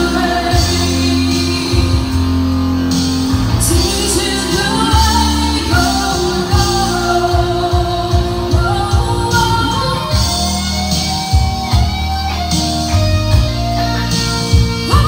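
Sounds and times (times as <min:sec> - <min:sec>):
woman singing: 0:00.0 - 0:02.4, 0:03.6 - 0:10.6
electric bass notes: 0:00.0 - 0:15.0
pop band playing: 0:00.0 - 0:15.0.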